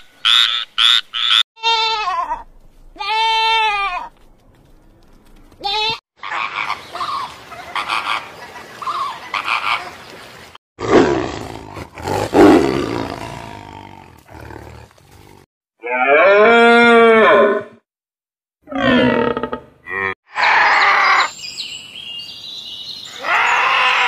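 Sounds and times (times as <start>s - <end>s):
deer bleating: 1.6s - 2.4s, 3.0s - 4.1s, 5.6s - 7.2s
flamingos honking: 6.2s - 10.0s
tiger roaring: 10.8s - 17.7s.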